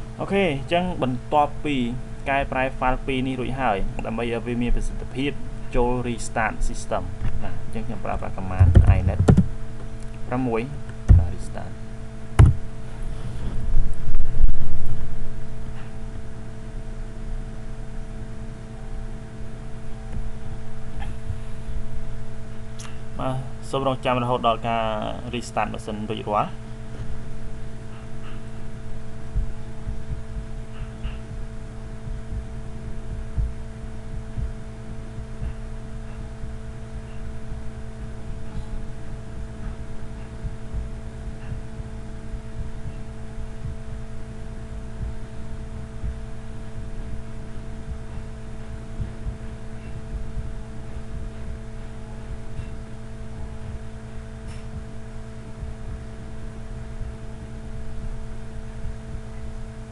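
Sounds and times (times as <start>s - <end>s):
steady hum with fixed tones: 0.0s - 59.9s
low thuds and rumble: 8.5s - 9.9s, 11.0s - 11.5s, 12.3s - 12.8s, 26.9s - 44.0s, 44.7s - 55.0s.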